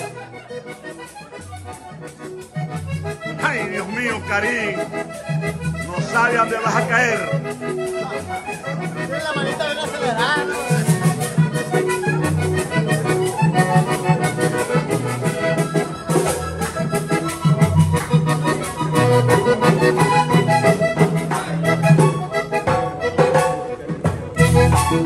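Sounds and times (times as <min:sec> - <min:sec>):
button accordion playing lively tune: 0:00.0 - 0:25.0.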